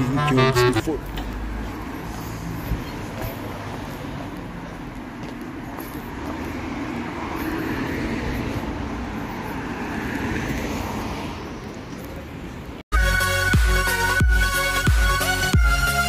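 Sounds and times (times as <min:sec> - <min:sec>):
city road traffic: 0:00.0 - 0:16.0
vehicle passing by: 0:00.9 - 0:11.7.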